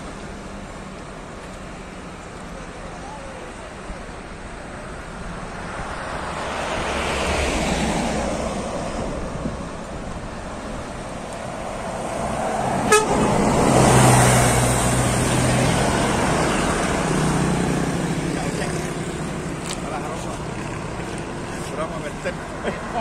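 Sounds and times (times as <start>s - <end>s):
bus passing: 0.0s - 23.0s
traffic noise: 0.0s - 23.0s
loud low bus horn: 12.8s - 13.7s.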